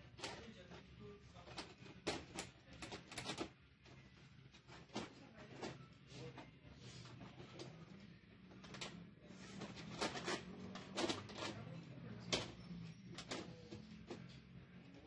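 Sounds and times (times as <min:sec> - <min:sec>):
plastic sheet clicking and crackling: 0:01.4 - 0:03.6.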